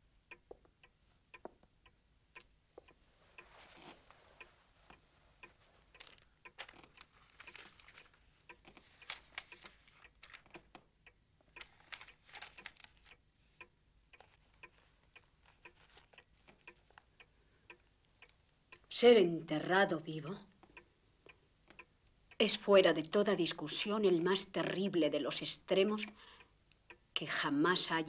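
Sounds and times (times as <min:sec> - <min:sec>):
clock ticking: 0:00.0 - 0:28.0
soft rustling: 0:02.4 - 0:10.8, 0:11.4 - 0:18.4.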